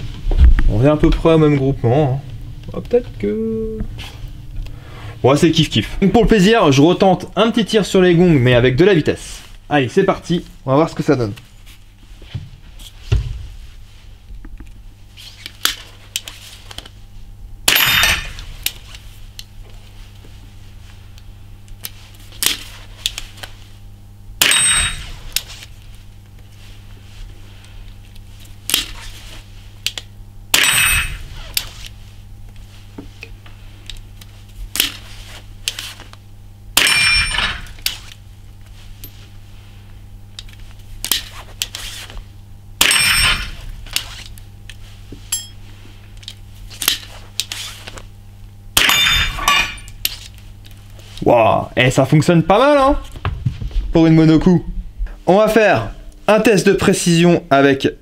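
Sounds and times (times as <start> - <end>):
rifle shots with metallic ring: 17.7 - 18.3, 24.4 - 25.1, 30.5 - 31.2, 36.8 - 37.6, 42.8 - 43.5, 48.8 - 49.8.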